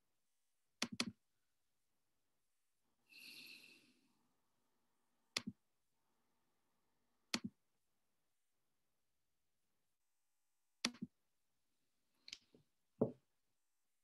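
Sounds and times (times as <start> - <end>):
computer mouse clicks: 0.8 - 1.2, 5.3 - 5.6, 10.8 - 11.1.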